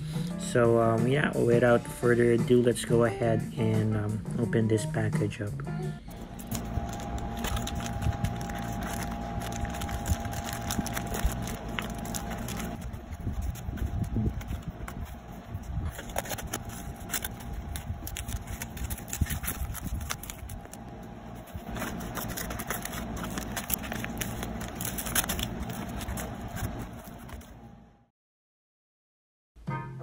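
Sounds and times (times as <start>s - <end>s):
scissors snipping paper: 6.1s - 20.8s, 21.4s - 27.5s
stiff paper crackling and rustling: 6.1s - 27.6s.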